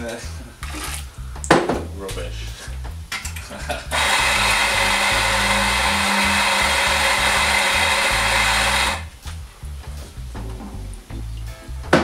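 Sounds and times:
coffee grinder grinding: 0:03.9 - 0:09.1.

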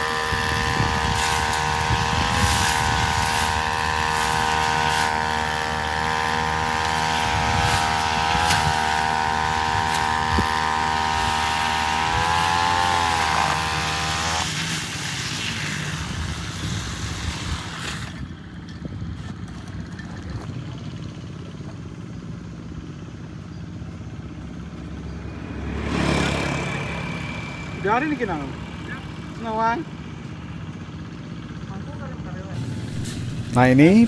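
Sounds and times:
brush cutter engine running: 0:00.0 - 0:18.3, 0:25.6 - 0:34.0
outdoor noise: 0:00.0 - 0:34.0.

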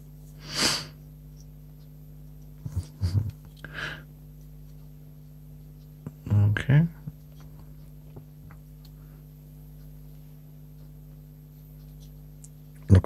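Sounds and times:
faint steady hum: 0:00.0 - 0:13.0
man breathing: 0:03.6 - 0:04.1.

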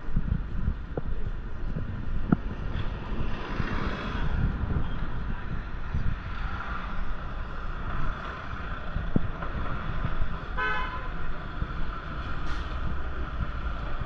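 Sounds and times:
city traffic rumble: 0:00.0 - 0:14.0
car horn toot: 0:10.6 - 0:11.1.

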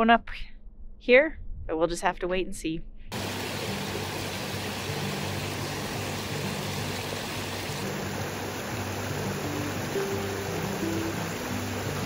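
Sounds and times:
creek rushing over rocks: 0:03.1 - 0:12.0.

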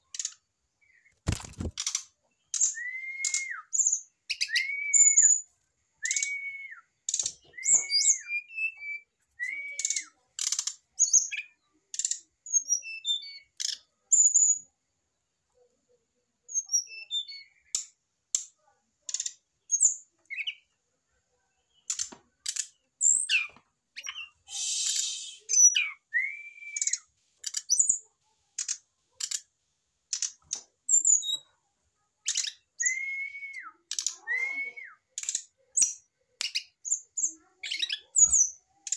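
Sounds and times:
birds clicking and chipping: 0:00.0 - 0:05.4, 0:06.0 - 0:14.0, 0:17.0 - 0:20.7, 0:21.6 - 0:25.8, 0:26.8 - 0:31.6, 0:32.2 - 0:32.9, 0:33.7 - 0:38.9
short whistled bird notes: 0:24.1 - 0:27.0
short hiss: 0:24.5 - 0:25.5.

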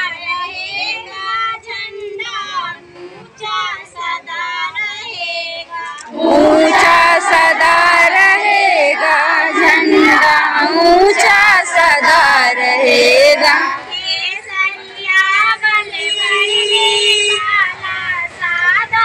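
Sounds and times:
women singing: 0:03.4 - 0:19.0
crowd shouting: 0:06.1 - 0:19.0.

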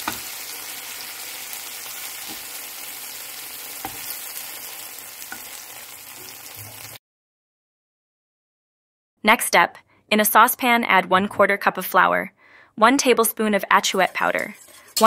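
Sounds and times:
shrimp sizzling in hot oil: 0:00.0 - 0:07.0.

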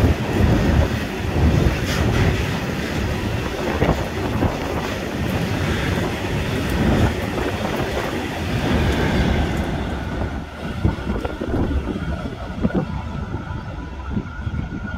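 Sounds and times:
train wheels knocking: 0:00.0 - 0:11.8
freight train passing: 0:00.0 - 0:14.9.

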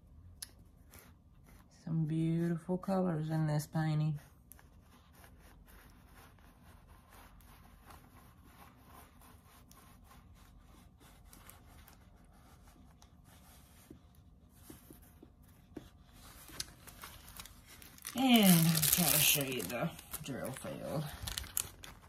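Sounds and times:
plastic rustling and rubbing: 0:04.5 - 0:22.0.

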